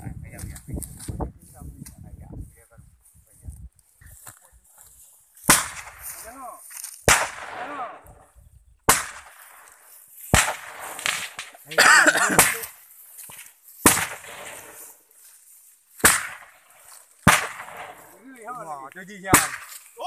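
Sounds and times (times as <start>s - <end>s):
firework bangs: 7.0s - 7.9s, 10.3s - 11.8s, 13.8s - 14.8s, 16.0s - 18.1s.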